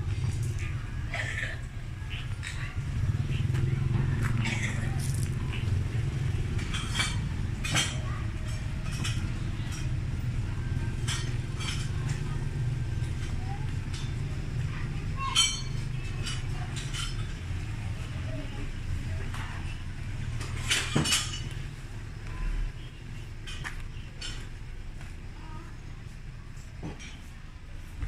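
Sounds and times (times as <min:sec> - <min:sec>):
faint voices: 0:00.0 - 0:28.0
clinks and knocks: 0:06.4 - 0:10.0, 0:20.4 - 0:21.6.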